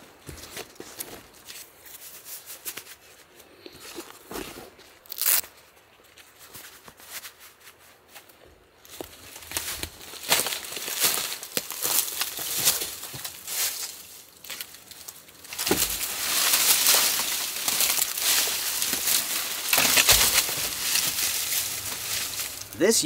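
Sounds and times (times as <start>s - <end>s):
sticks crackling and snapping: 5.0s - 5.5s, 9.0s - 22.9s
branches thudding: 5.1s - 5.4s, 9.5s - 23.0s.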